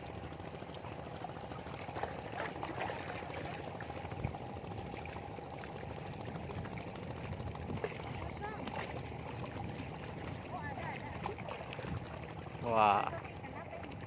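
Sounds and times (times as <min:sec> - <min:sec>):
seawater washing against rocks: 0:07.6 - 0:14.0.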